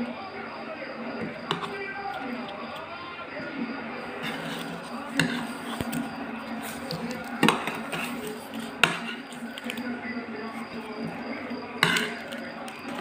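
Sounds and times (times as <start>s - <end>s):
pastries knocking on tray and plate: 1.2s - 1.9s, 5.1s - 6.0s, 6.9s - 9.3s, 11.8s - 13.0s.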